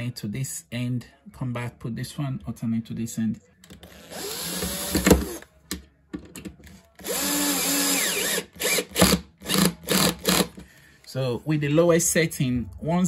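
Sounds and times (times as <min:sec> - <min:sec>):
cordless drill motor whirring: 0:03.8 - 0:05.4, 0:07.0 - 0:10.6.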